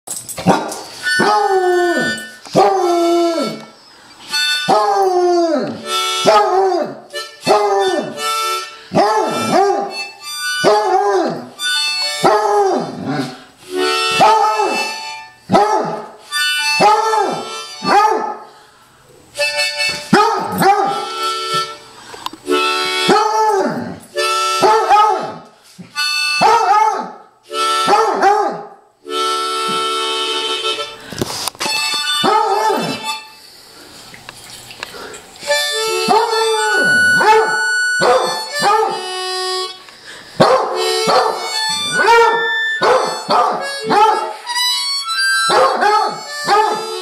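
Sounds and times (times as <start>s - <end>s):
harmonica held notes: 0.9s - 15.5s, 16.2s - 25.0s, 25.6s - 26.7s, 27.4s - 28.2s, 29.0s - 33.8s, 35.4s - 47.0s
dog howling: 36.0s - 39.0s.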